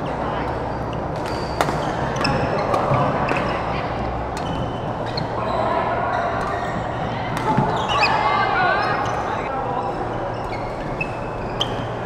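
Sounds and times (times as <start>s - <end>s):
rackets hitting shuttlecock: 0.5s - 3.6s
background chatter: 1.8s - 12.0s
shoes squeaking on court: 9.9s - 12.0s.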